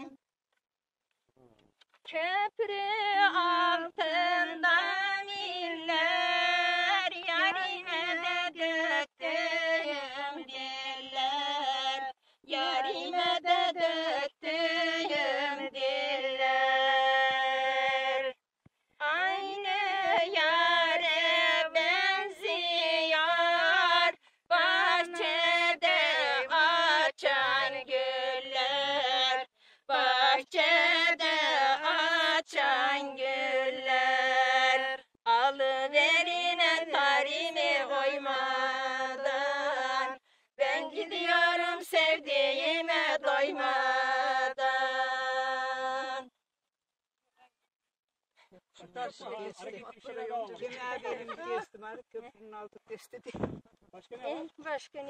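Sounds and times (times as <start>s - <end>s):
woman singing folk song: 2.1s - 18.4s, 19.0s - 46.3s.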